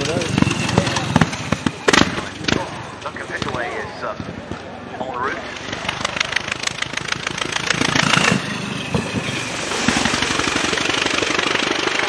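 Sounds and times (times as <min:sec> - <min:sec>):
racing car engine passing: 0:05.6 - 0:11.4.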